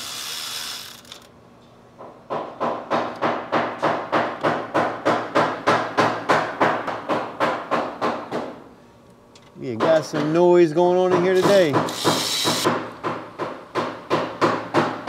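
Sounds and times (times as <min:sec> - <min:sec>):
hammer beating on metal: 0:09.7 - 0:15.0.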